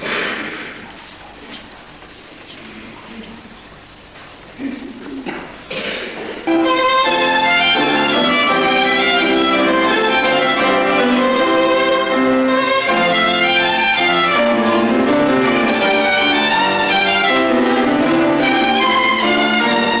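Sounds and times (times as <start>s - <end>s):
violin playing slow melody: 6.5s - 20.0s.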